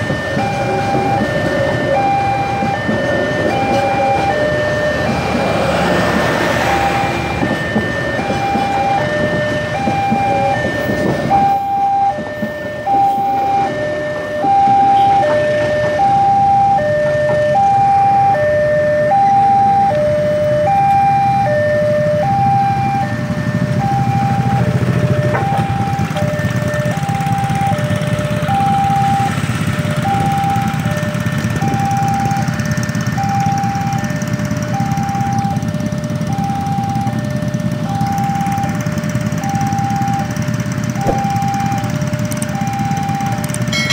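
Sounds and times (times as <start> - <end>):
train rumbling past: 0.0 - 18.2, 22.8 - 43.9
two-tone electronic crossing alarm: 0.0 - 43.9
motorcycle engines idling: 19.4 - 43.9.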